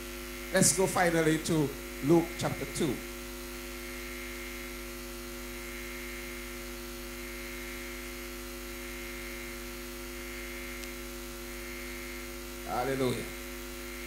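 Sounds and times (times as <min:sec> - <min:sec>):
electrical mains hum and buzz: 0:00.0 - 0:14.0
steady tones: 0:00.5 - 0:03.1.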